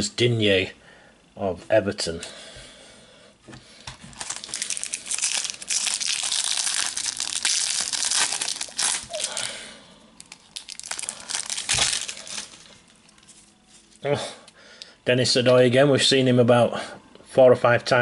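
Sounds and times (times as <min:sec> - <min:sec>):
foil wrapper crinkling: 0:04.0 - 0:09.6, 0:10.2 - 0:14.0
foil packet tearing: 0:04.1 - 0:09.6, 0:10.2 - 0:13.5.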